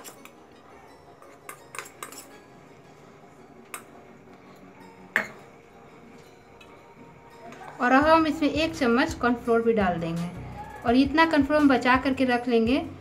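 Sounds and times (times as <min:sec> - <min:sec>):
steel spoon clinking on steel bowl: 0:00.0 - 0:02.6, 0:03.6 - 0:05.6.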